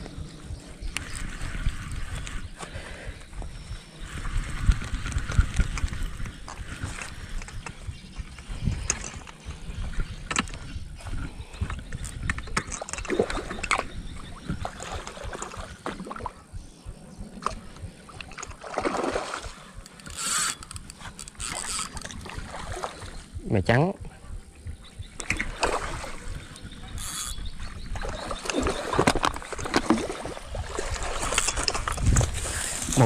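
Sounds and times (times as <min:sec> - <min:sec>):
wind buffeting microphone: 0:00.0 - 0:33.0
fish splashing: 0:18.2 - 0:23.2
fishing reel clicking: 0:19.8 - 0:22.3, 0:26.9 - 0:27.5, 0:31.2 - 0:32.7.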